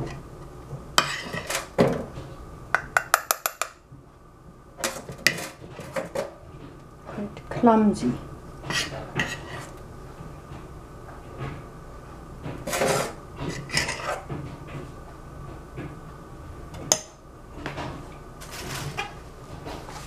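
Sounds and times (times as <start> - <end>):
metal spoon scraping pot: 1.0 - 1.7, 8.6 - 9.8, 12.7 - 14.3.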